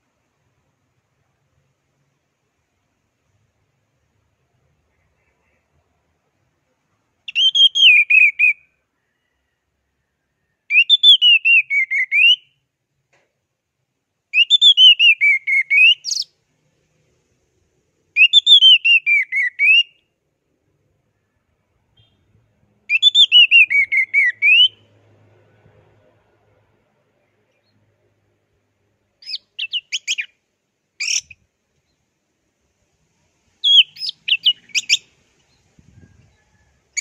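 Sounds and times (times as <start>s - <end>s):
thrush singing whistled notes: 7.3s - 8.7s, 10.7s - 12.6s, 14.3s - 16.4s, 18.2s - 20.0s, 22.9s - 24.9s, 29.2s - 30.4s, 33.6s - 36.1s.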